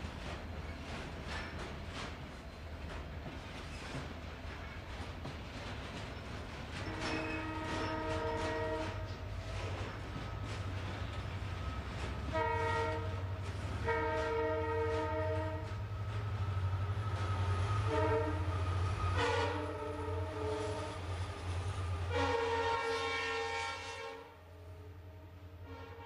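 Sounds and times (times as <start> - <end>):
freight train rumbling: 0.0 - 26.0
train horn blasts: 6.9 - 9.3, 12.2 - 15.9, 17.3 - 21.1, 21.9 - 26.0.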